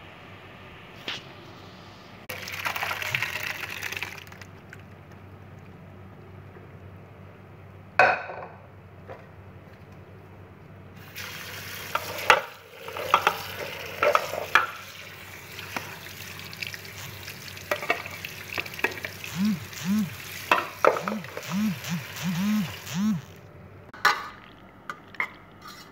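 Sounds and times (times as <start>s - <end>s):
tap water running: 2.3s - 4.8s, 11.0s - 23.2s.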